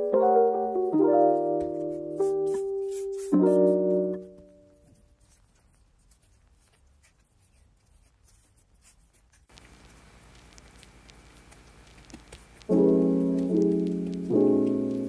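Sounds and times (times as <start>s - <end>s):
loud piano music: 0.0s - 4.8s, 12.7s - 15.0s
hands patting dough in bowl: 1.3s - 15.0s.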